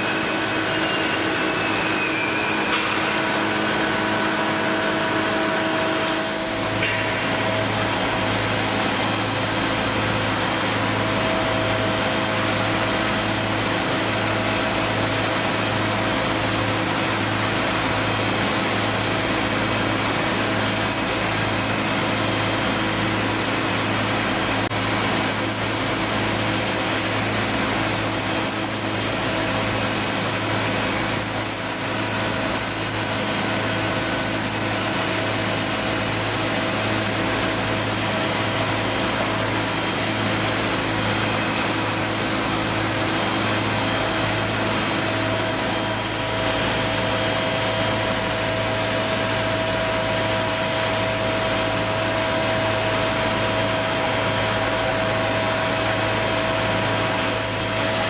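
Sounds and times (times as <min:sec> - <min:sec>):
low machinery hum: 0:00.0 - 0:58.0
thin high whine: 0:00.0 - 0:58.0.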